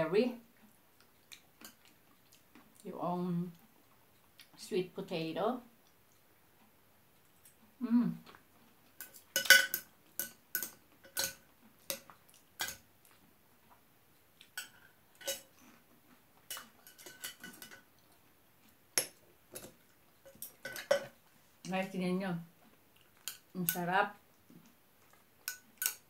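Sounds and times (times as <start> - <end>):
metal chopsticks clinking against bowl: 9.0 - 12.0, 14.6 - 15.5, 16.5 - 17.8, 19.0 - 21.1, 25.5 - 26.0.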